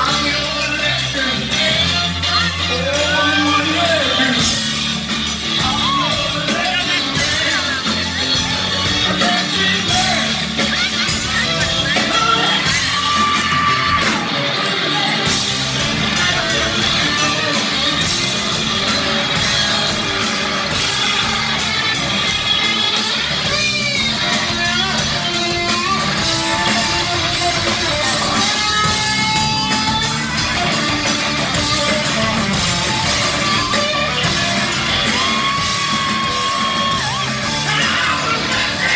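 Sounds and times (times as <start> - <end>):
live rock band playing: 0.0 - 38.9
man singing and yelling: 0.0 - 38.9.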